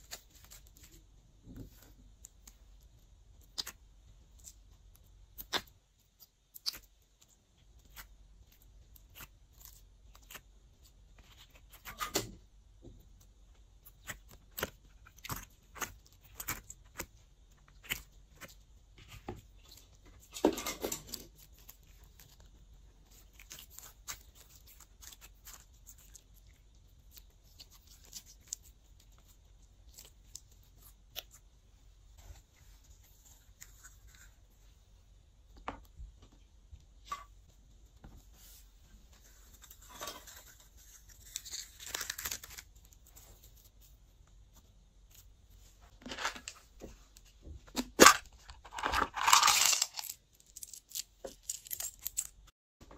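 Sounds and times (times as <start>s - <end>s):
sticky slime clicks and crackles: 5.3s - 10.5s.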